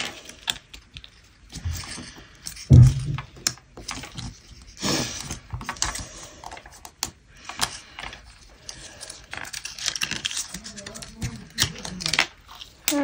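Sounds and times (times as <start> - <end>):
handling thump: 2.7 - 3.3
paper rustle: 7.6 - 13.0.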